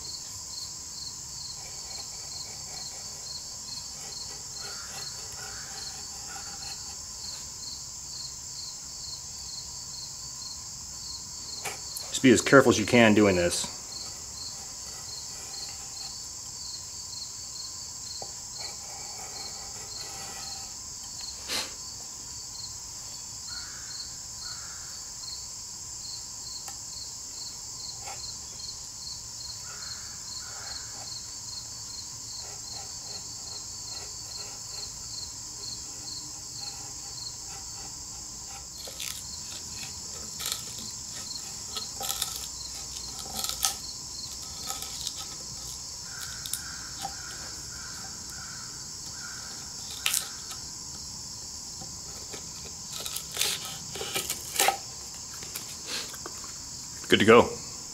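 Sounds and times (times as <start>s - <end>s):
insects chirping: 0.0s - 57.9s
scratchy knife strokes: 1.5s - 7.6s, 32.3s - 48.6s, 52.0s - 54.9s.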